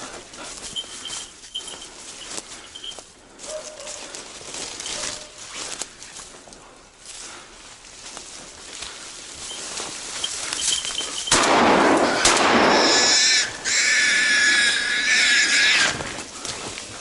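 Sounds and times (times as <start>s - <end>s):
wild boar squealing: 12.0s - 16.2s.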